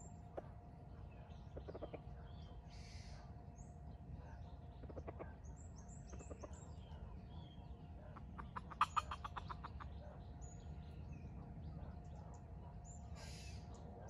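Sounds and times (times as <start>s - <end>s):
small birds chirping: 0.0s - 14.0s
jungle fowl clucking: 1.5s - 3.1s, 4.7s - 10.3s.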